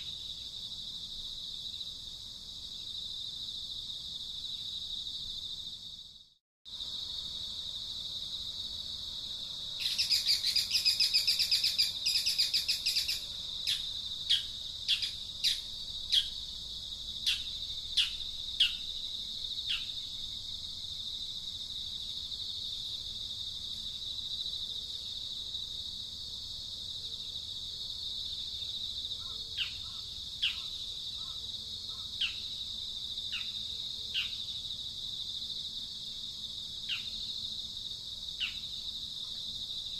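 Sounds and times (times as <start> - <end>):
high insect chirring: 0.0 - 39.9
bird calls: 9.8 - 16.4, 29.2 - 32.5.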